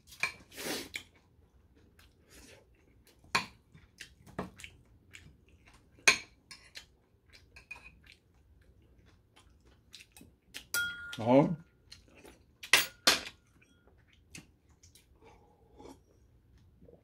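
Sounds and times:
spoon clinking on ceramic dishes: 0:10.7 - 0:11.3, 0:12.7 - 0:13.8.

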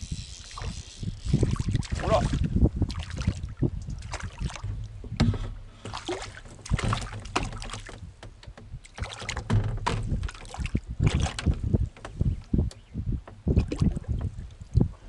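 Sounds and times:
water sloshing: 0:00.4 - 0:12.3, 0:13.4 - 0:14.8
knocks against boat: 0:04.4 - 0:12.4.

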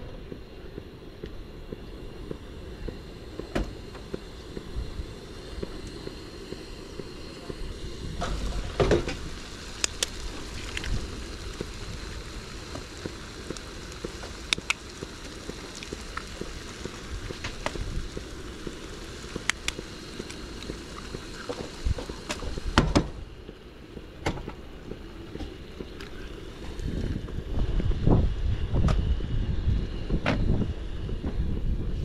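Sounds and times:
food sizzling in a pan: 0:03.7 - 0:23.0.

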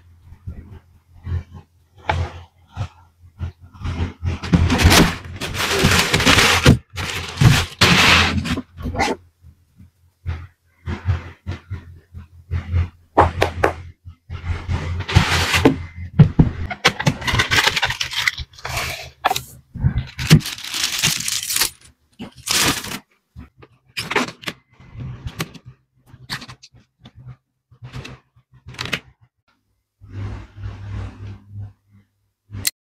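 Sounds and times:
packaging clicks and scrapes: 0:03.9 - 0:09.2, 0:16.6 - 0:23.1
plastic wrapping crinkling and tearing: 0:04.7 - 0:08.5, 0:17.0 - 0:19.5, 0:20.1 - 0:23.1.

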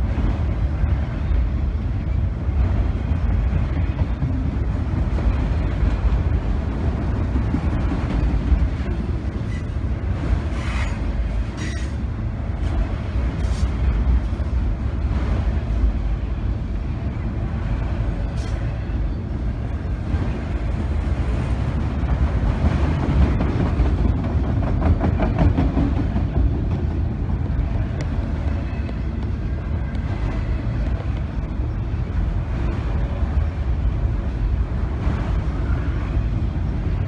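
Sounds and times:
train wheels rumbling on rails: 0:00.0 - 0:37.0.

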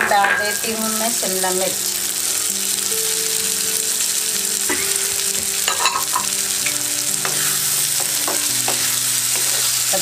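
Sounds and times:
vegetables sizzling in hot oil: 0:00.0 - 0:10.0
wooden spatula scraping a pan: 0:07.2 - 0:10.0.

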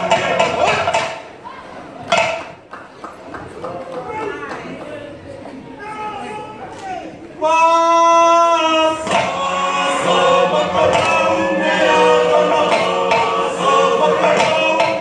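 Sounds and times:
group of voices chanting: 0:08.5 - 0:15.0.

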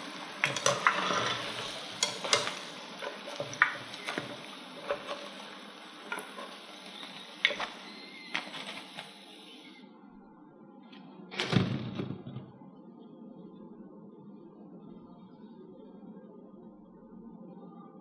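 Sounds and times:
hot oil sizzling in a wok: 0:00.0 - 0:09.8
chopsticks and skimmer clicking: 0:00.4 - 0:05.4.

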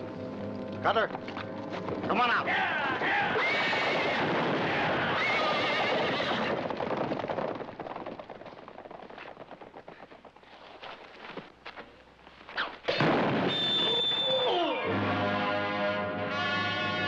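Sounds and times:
galloping hoofbeats: 0:00.2 - 0:11.8
horse whinnying: 0:02.6 - 0:06.6.

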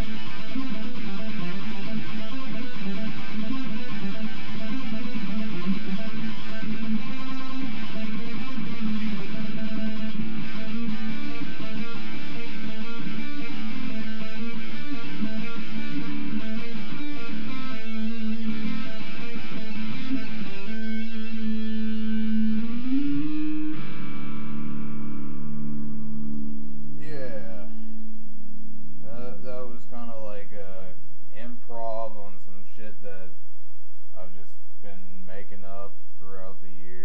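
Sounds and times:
electric guitar riff: 0:00.0 - 0:28.1.

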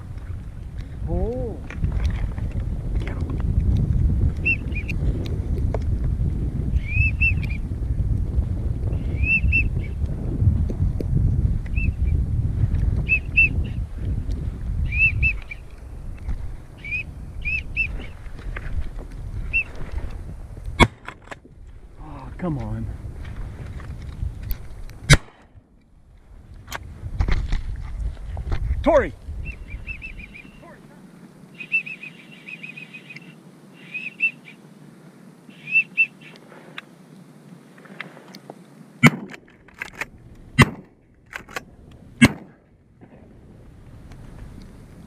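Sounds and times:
wind rumble on microphone: 0:00.0 - 0:31.8, 0:36.4 - 0:45.0
duck whistling calls: 0:06.8 - 0:07.6, 0:09.2 - 0:09.9, 0:13.1 - 0:13.8, 0:14.9 - 0:15.6, 0:16.8 - 0:18.1, 0:29.5 - 0:30.8, 0:31.5 - 0:34.6, 0:35.5 - 0:36.4
duck whistle call: 0:31.6 - 0:34.6, 0:35.5 - 0:36.4.

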